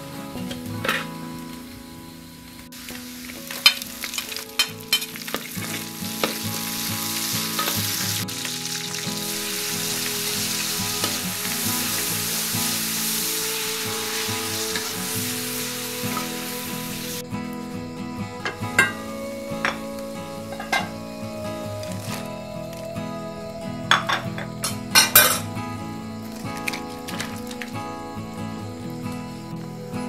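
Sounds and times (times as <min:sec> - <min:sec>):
food sizzling in hot oil: 0:02.7 - 0:17.2.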